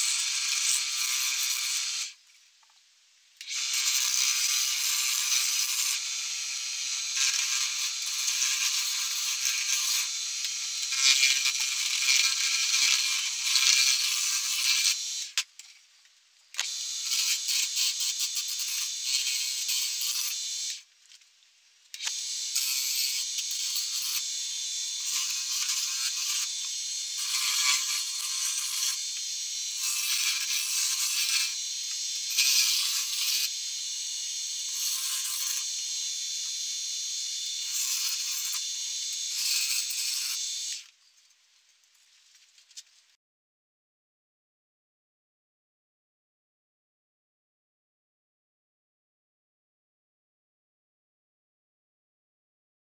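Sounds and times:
wood being shaved on a lathe: 0:03.6 - 0:15.2, 0:16.6 - 0:20.8, 0:22.1 - 0:40.8
lathe motor whine: 0:05.2 - 0:15.3, 0:22.0 - 0:40.8.

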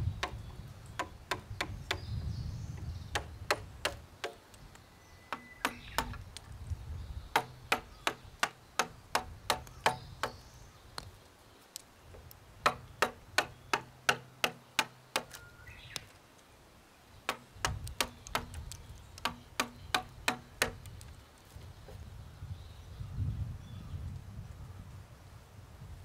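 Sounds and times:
mallet striking chisel into wood: 0:00.2 - 0:02.1, 0:03.1 - 0:04.4, 0:05.3 - 0:06.2, 0:07.3 - 0:10.4, 0:12.6 - 0:15.4, 0:17.3 - 0:20.9.

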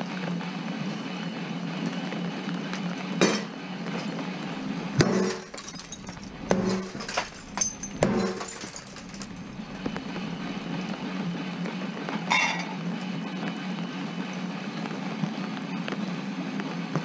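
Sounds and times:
low hum: 0:03.8 - 0:15.0.

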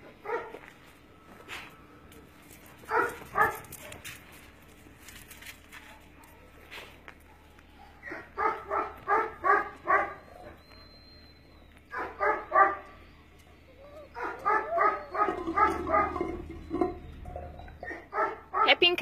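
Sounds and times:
dog barking: 0:00.2 - 0:00.6, 0:02.9 - 0:04.0, 0:07.3 - 0:10.2, 0:11.9 - 0:12.8, 0:14.2 - 0:16.3, 0:17.9 - 0:18.9.

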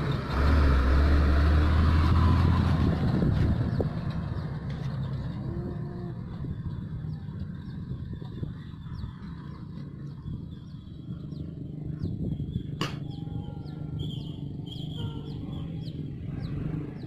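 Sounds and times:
distant diesel truck engine: 0:00.0 - 0:17.0
birds chirping: 0:03.6 - 0:17.0.

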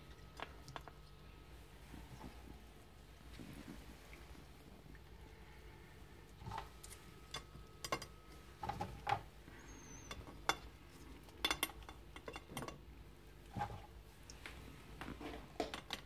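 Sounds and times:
dishes and cutlery clicking: 0:11.4 - 0:12.8.

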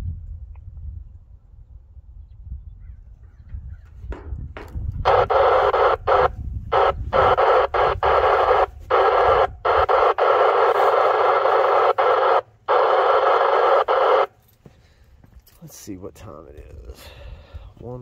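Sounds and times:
radio static hissing: 0:04.6 - 0:14.4.

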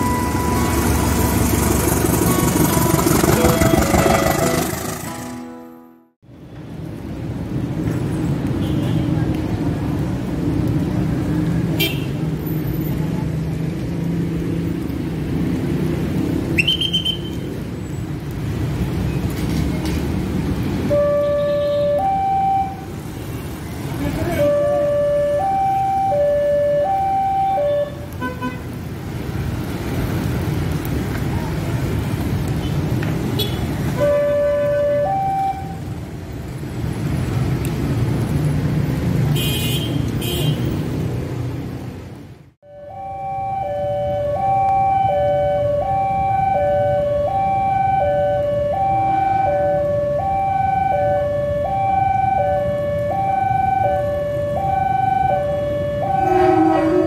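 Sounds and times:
short high-pitched tone: 0:00.0 - 0:06.0
car and motorbike engines: 0:00.0 - 0:57.0.

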